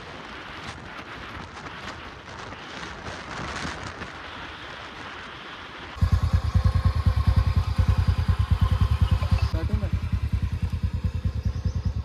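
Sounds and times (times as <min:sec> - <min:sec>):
wind rushing over microphone: 0:00.0 - 0:12.0
motorcycle engine idling: 0:06.0 - 0:12.0.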